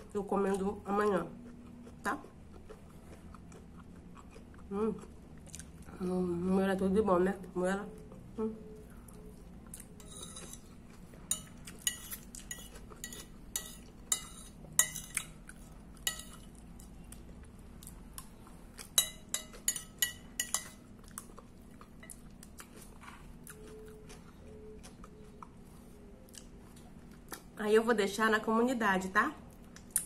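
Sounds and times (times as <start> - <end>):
spoon clinking on ceramic plate: 11.3 - 15.3, 19.0 - 20.8.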